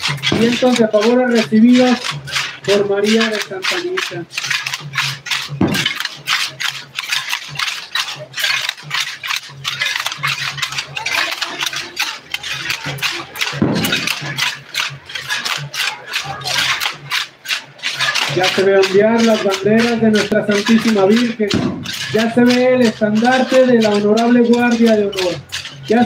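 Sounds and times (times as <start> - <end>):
crowd voices: 0.0 - 26.0
hand rattles shaken rhythmically: 0.0 - 26.0.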